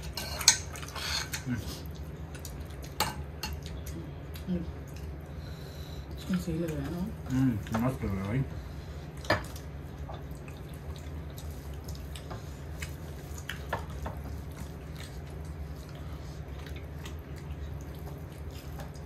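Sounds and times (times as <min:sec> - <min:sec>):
people chewing food: 0:00.0 - 0:19.0
steady low hum: 0:00.0 - 0:19.0.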